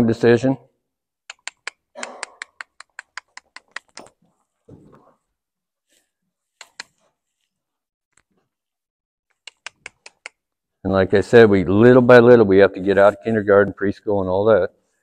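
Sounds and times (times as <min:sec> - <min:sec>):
tongue clicks: 0:01.2 - 0:04.2, 0:06.6 - 0:07.0, 0:09.3 - 0:10.5
low shuffling sound: 0:04.2 - 0:08.6, 0:11.7 - 0:13.9.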